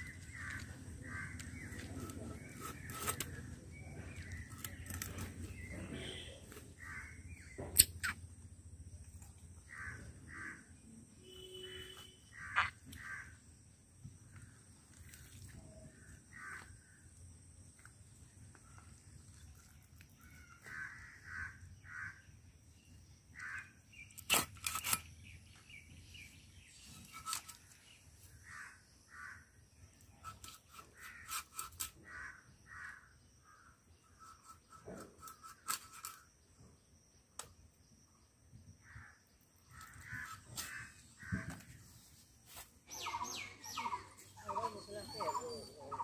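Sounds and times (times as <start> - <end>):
birds calling: 0.0 - 8.4, 9.6 - 13.5, 38.8 - 46.0.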